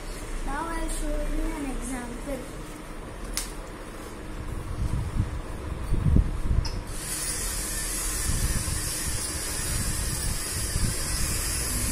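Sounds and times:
small electric motors whirring: 0:06.9 - 0:11.9.

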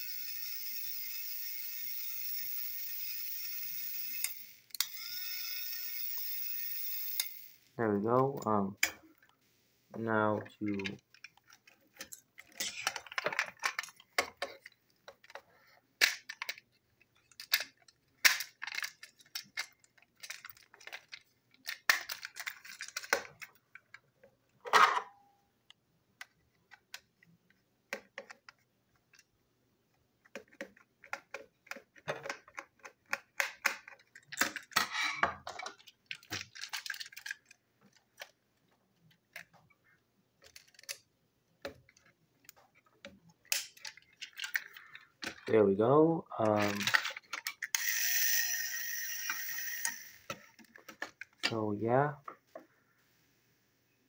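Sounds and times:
plastic parts clicking and rattling: 0:10.4 - 0:25.1, 0:26.2 - 0:29.4, 0:30.2 - 0:45.6, 0:46.4 - 0:51.6.

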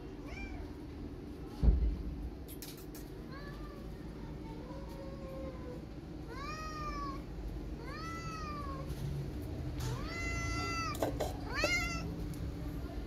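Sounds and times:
cat meowing: 0:00.2 - 0:00.7, 0:05.1 - 0:08.9, 0:09.8 - 0:12.1.

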